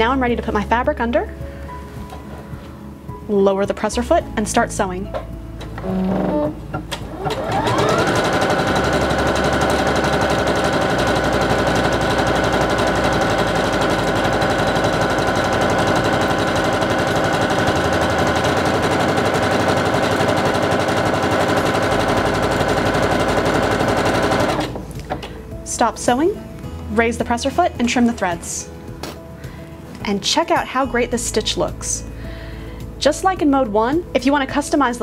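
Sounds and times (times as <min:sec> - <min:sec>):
sewing machine running: 0:07.1 - 0:24.8.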